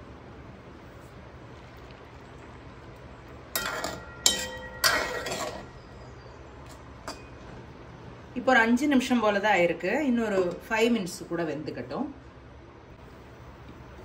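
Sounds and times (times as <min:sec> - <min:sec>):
steady low hum: 0:00.0 - 0:14.0
ladle stirring in pot: 0:00.9 - 0:07.6
cookware clinking: 0:03.6 - 0:05.9, 0:07.0 - 0:07.4.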